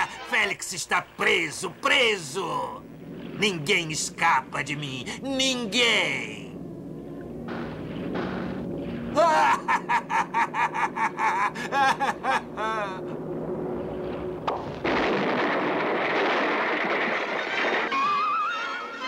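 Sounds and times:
background music: 0:00.0 - 0:00.7, 0:17.2 - 0:19.0
cartoon character cackling: 0:09.2 - 0:13.1.

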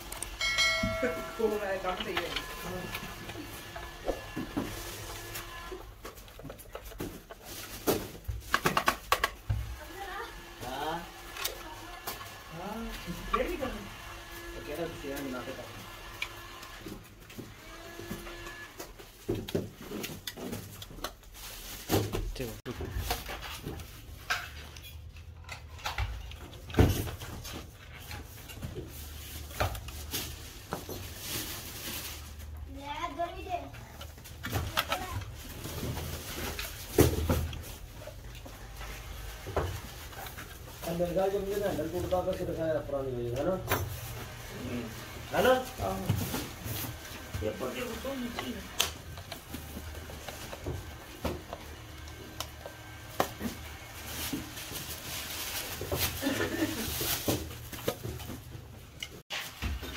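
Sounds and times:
clicks and knocks of handled tools: 0:23.1 - 0:28.8.

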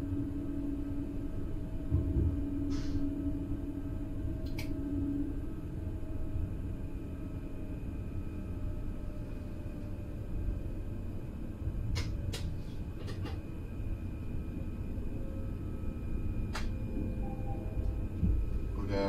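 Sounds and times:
electric train rumble: 0:00.0 - 0:19.0
faint steady tones: 0:13.6 - 0:19.0.

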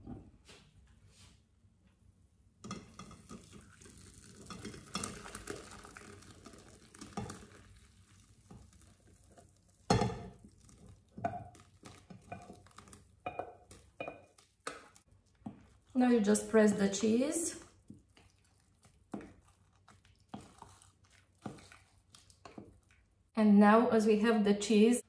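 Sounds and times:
wooden spoon scraping a pot: 0:02.7 - 0:23.0
liquid pouring and splashing: 0:03.0 - 0:16.0, 0:17.6 - 0:23.2.

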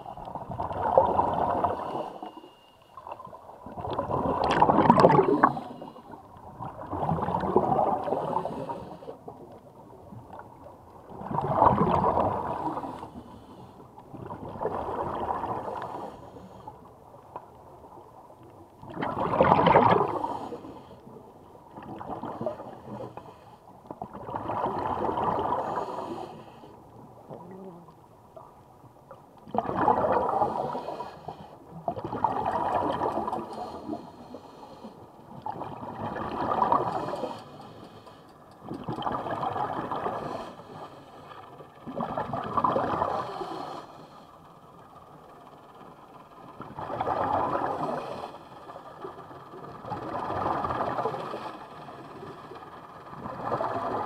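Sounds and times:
breathing through a regulator: 0:01.6 - 0:02.9, 0:05.4 - 0:06.2, 0:08.1 - 0:09.3, 0:12.6 - 0:13.9, 0:15.6 - 0:16.9, 0:20.0 - 0:21.1, 0:22.4 - 0:23.7, 0:25.5 - 0:26.9, 0:30.3 - 0:31.6, 0:33.4 - 0:35.2, 0:36.8 - 0:38.6, 0:40.1 - 0:41.6, 0:43.0 - 0:44.7, 0:47.7 - 0:49.1, 0:51.1 - 0:52.5
diver exhaling bubbles: 0:03.7 - 0:05.9, 0:06.6 - 0:08.8, 0:11.2 - 0:12.9, 0:18.9 - 0:20.5.

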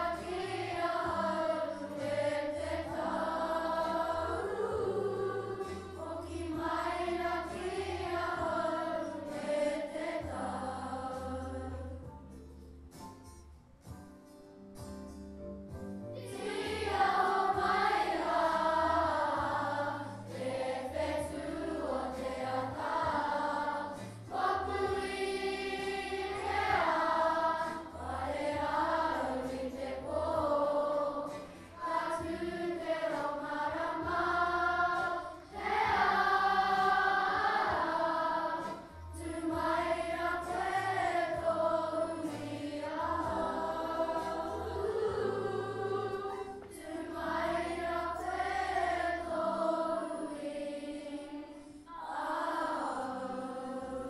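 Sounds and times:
children's choir singing: 0:00.0 - 0:12.1, 0:16.2 - 0:54.0.

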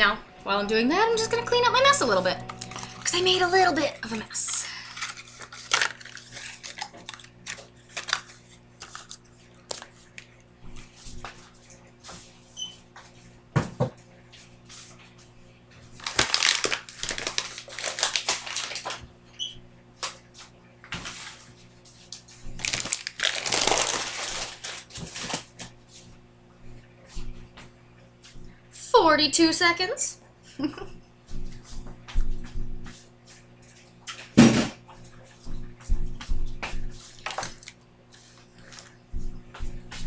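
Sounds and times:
clattering clean-up noises: 0:00.0 - 0:08.2
microwave oven humming: 0:00.0 - 0:40.0.

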